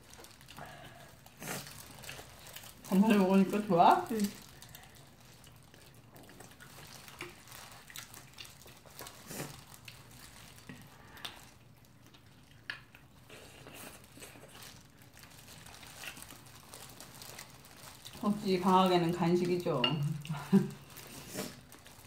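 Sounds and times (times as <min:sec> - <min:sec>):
short food crunches: 0:00.0 - 0:03.3, 0:04.0 - 0:18.3
plastic gloves crinkling: 0:00.0 - 0:12.5, 0:13.2 - 0:22.0
chewing and mouth smacks: 0:04.4 - 0:18.2.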